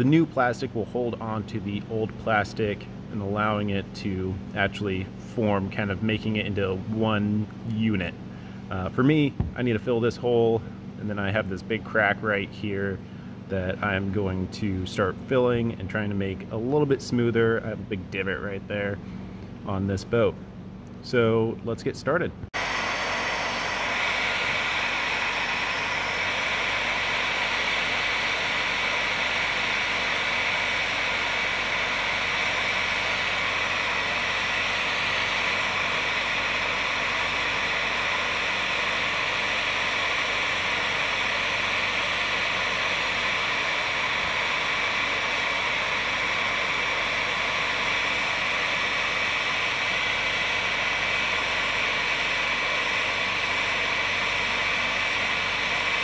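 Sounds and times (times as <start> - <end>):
high fan whine: 0.0 - 56.0
heat gun blowing air: 22.6 - 56.0.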